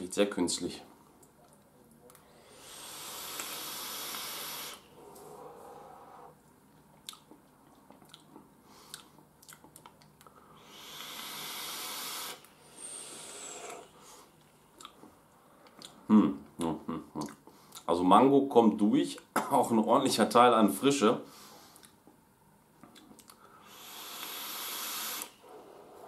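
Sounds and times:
exhaled breath: 2.2s - 6.4s
vape coil hissing and sizzling: 2.6s - 4.8s, 10.7s - 13.9s, 23.7s - 25.4s.

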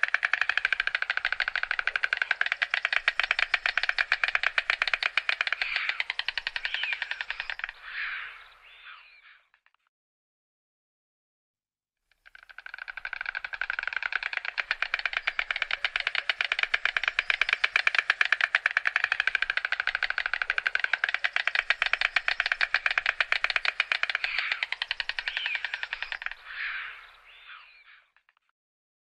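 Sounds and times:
stork bill clattering: 0.0s - 7.8s, 12.2s - 26.5s.

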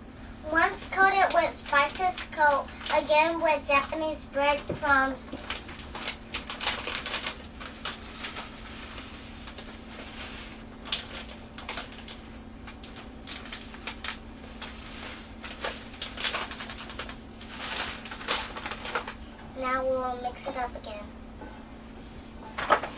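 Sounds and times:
plastic bag crinkling: 0.8s - 3.9s, 4.6s - 19.3s.

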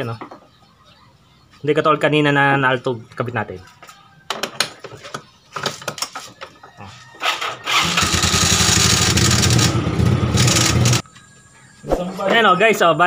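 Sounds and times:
motorcycle engine running: 8.0s - 11.0s.

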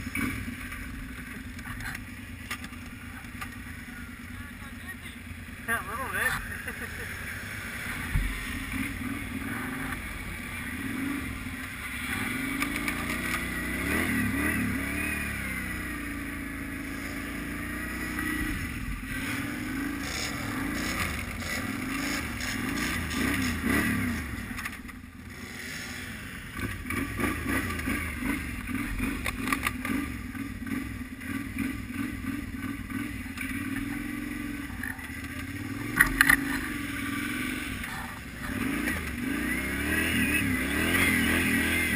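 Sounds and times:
quad engine revving: 0.0s - 41.9s.

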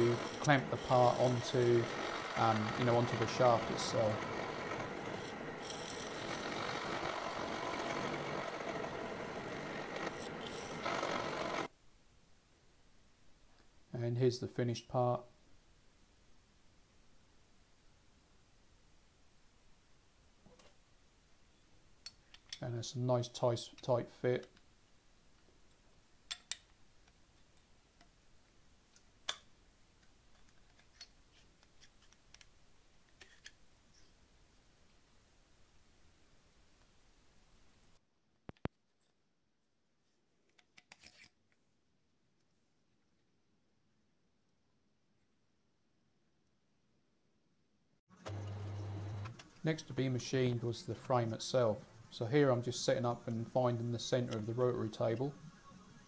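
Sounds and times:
milling machine cutting metal: 0.0s - 11.7s.

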